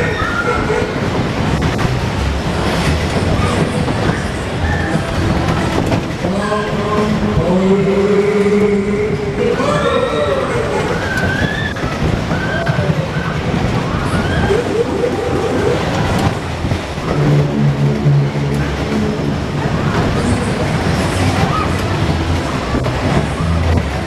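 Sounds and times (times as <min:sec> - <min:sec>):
ride cars rumbling on track: 0:00.0 - 0:24.0
ride music: 0:00.0 - 0:24.0
riders' voices: 0:03.5 - 0:16.5.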